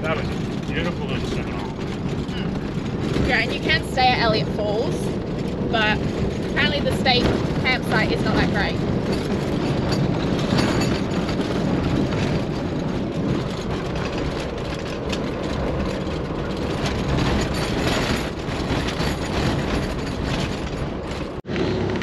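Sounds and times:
road and engine rumble: 0.0 - 22.0
vehicle rattling: 0.0 - 22.0.

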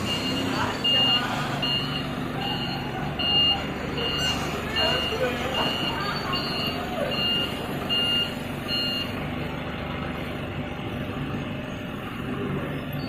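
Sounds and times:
reversing alarm beeps: 0.0 - 9.2
forklift engine running: 0.0 - 13.0.

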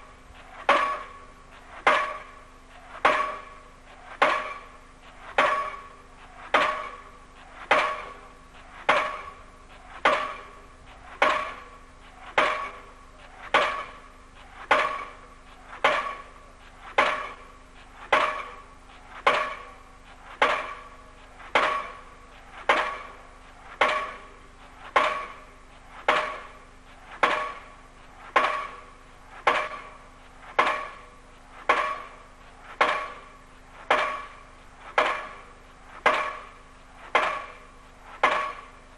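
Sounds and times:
pile hammer ringing clangs: 0.7 - 1.3, 1.9 - 2.4, 3.0 - 3.6, 4.2 - 4.8, 5.4 - 6.0, 15.8 - 16.3, 17.0 - 17.5, 38.2 - 38.8.

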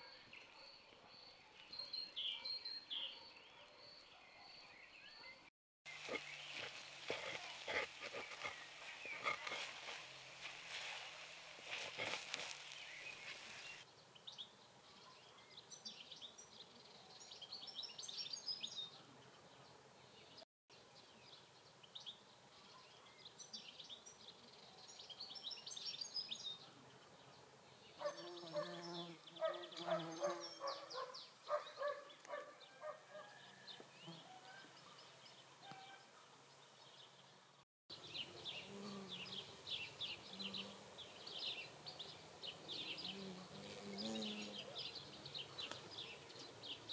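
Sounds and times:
small birds chirping and singing: 0.0 - 46.9
poultry calls: 6.0 - 13.8.

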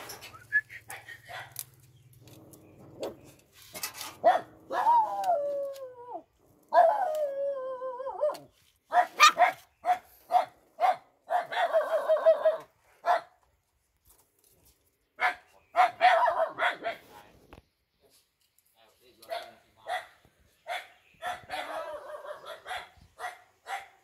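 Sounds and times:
puppy whining and yelping: 4.2 - 9.5.

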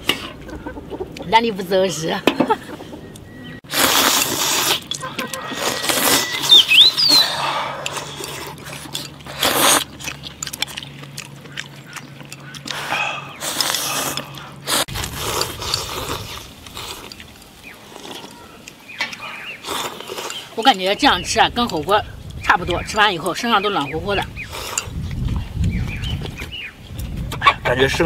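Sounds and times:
chewing: 3.1 - 22.4, 23.2 - 28.0
people slurping noodle soup: 3.7 - 10.2, 12.6 - 18.4, 19.6 - 20.6, 24.4 - 25.5.

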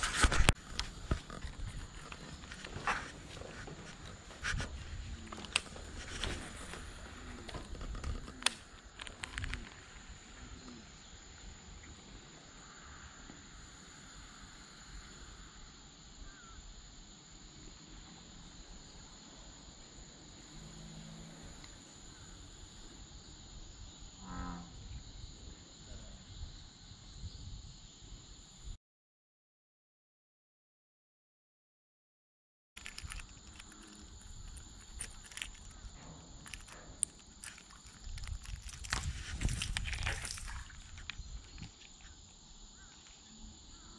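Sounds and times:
quiet outdoor ambience: 0.0 - 28.8, 32.8 - 43.9
bullfrog calls: 16.2 - 16.6, 24.2 - 25.0.

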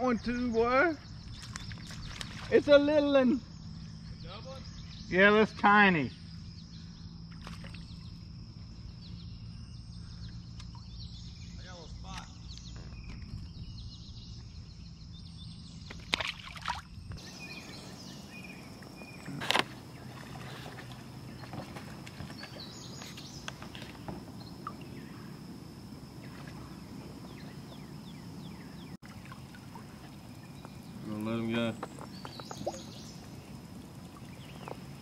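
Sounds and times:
small water splashes: 1.3 - 2.7, 7.3 - 8.0, 15.9 - 17.8, 18.8 - 22.9, 29.0 - 35.0.

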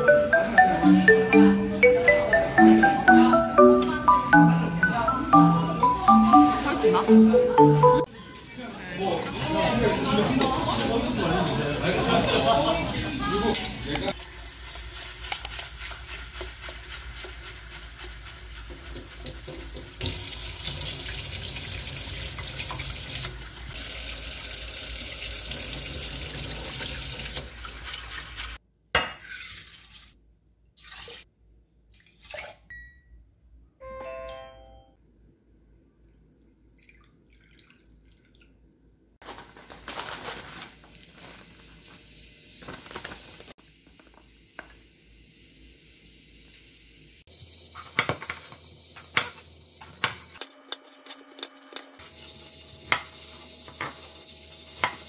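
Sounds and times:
tap water running into bowl: 18.7 - 28.5.

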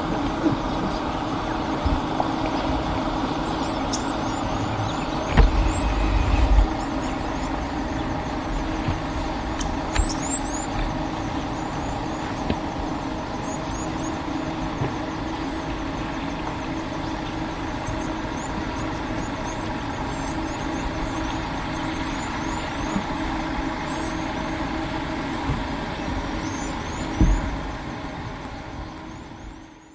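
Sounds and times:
vehicle engine idling: 0.0 - 29.7
small birds chirping: 0.1 - 25.1, 25.8 - 27.6
low thump: 5.3 - 6.7.

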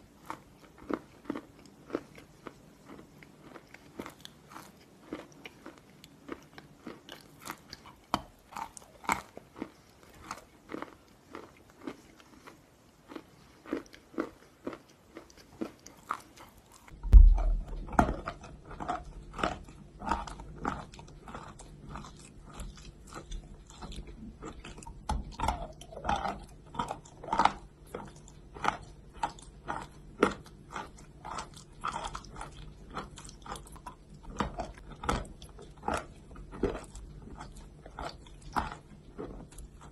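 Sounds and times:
loud thud: 17.0 - 18.3.

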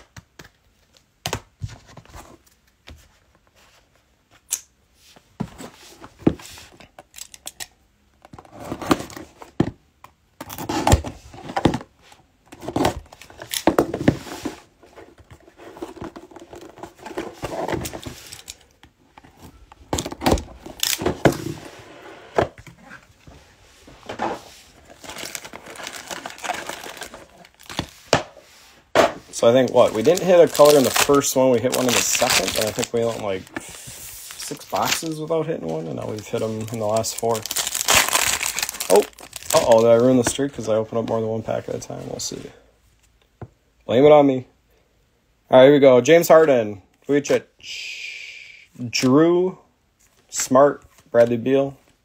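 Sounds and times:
foil packs crinkling: 24.9 - 27.9, 29.4 - 40.2
cardboard box tearing: 25.0 - 27.8, 36.7 - 39.7.

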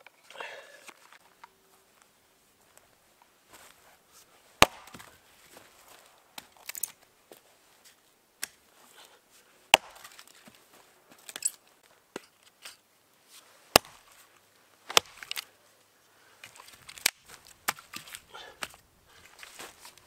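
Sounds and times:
wood chopping knocks: 4.6 - 5.1, 9.7 - 10.1, 13.8 - 14.0, 14.9 - 15.3.

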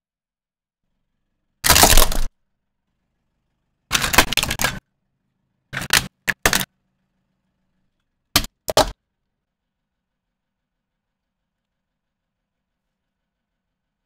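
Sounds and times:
plastic toys cracking under a tyre: 1.6 - 2.3, 3.9 - 4.8, 5.8 - 6.7.

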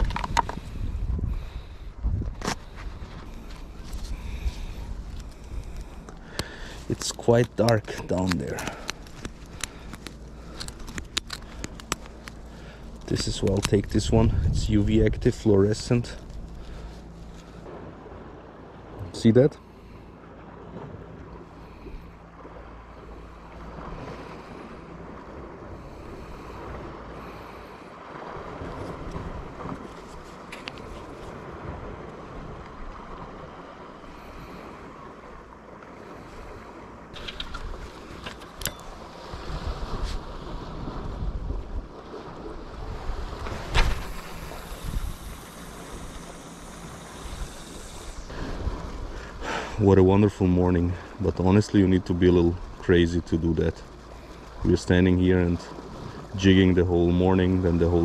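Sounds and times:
wind blowing over microphone: 0.0 - 9.9, 13.1 - 16.6, 37.1 - 50.4
sea surf: 0.0 - 58.0
wind: 0.0 - 58.0.

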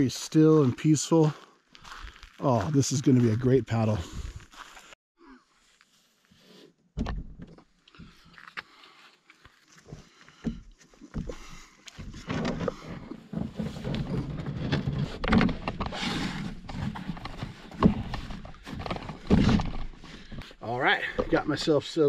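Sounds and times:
knocks and thumps on canoe hull: 10.4 - 21.4.

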